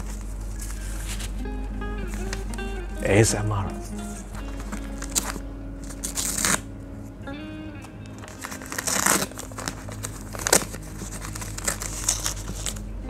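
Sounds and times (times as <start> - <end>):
paper wrapping tearing and crinkling: 0.0 - 1.4, 4.0 - 6.7, 8.1 - 12.9
quiet background music: 0.0 - 13.0.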